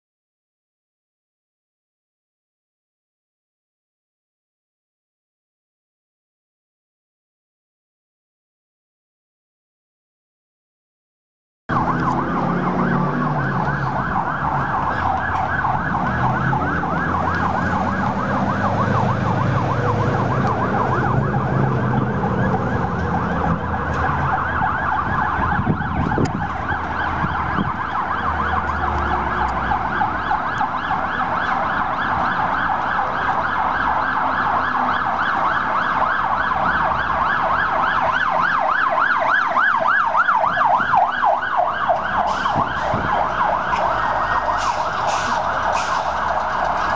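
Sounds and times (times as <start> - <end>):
fire truck siren yelping: 11.7 - 46.9.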